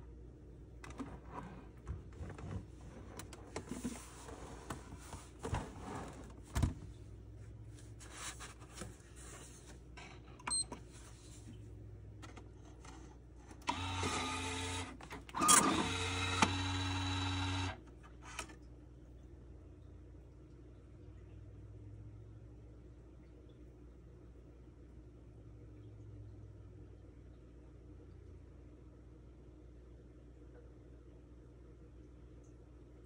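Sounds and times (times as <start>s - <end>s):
time clock mechanism running: 13.6s - 17.8s.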